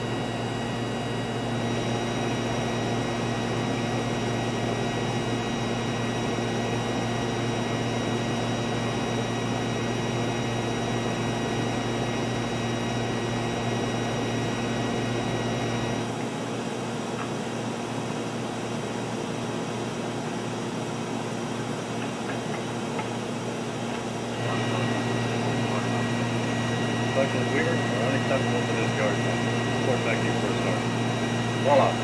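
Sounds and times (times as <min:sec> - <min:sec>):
high whining tones: 0:00.0 - 0:16.1
tape recorder mechanical hum: 0:00.0 - 0:19.3, 0:21.1 - 0:32.0
cooling fans: 0:00.0 - 0:32.0.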